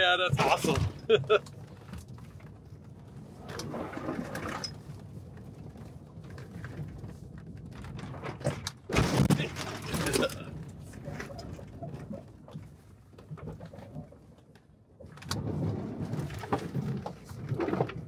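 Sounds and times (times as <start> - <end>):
tyre and chassis noise: 0.0 - 14.3.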